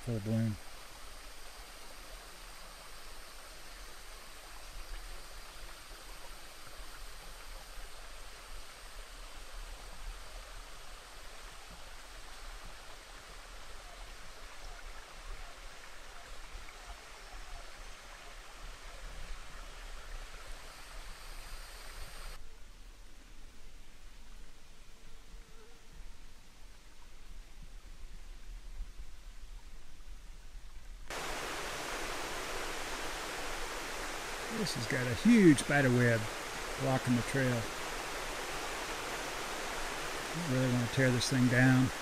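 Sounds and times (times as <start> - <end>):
high insect whine: 20.6 - 22.4, 31.1 - 42.0
mountain stream rushing: 31.1 - 42.0.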